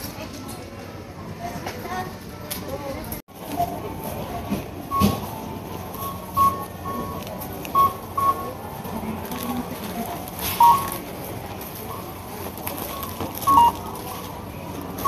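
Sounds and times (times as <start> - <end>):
store background noise: 0.0 - 15.0
checkout register beeping: 3.4 - 15.0.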